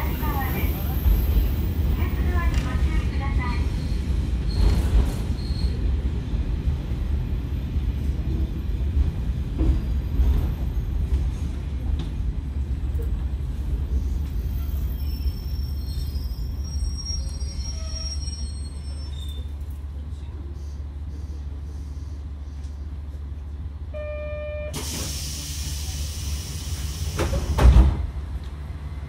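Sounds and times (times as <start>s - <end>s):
train wheels on rails: 0.0s - 16.7s, 24.8s - 28.7s
high wheel squeal: 14.6s - 19.6s.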